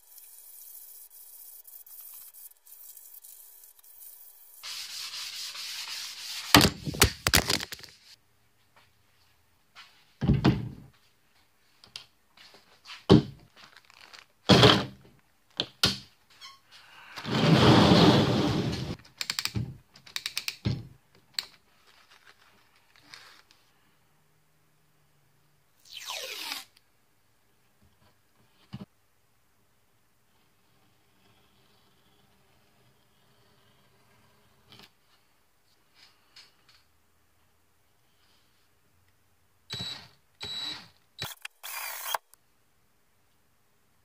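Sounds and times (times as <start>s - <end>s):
rubbing noise: 0.0s - 7.1s.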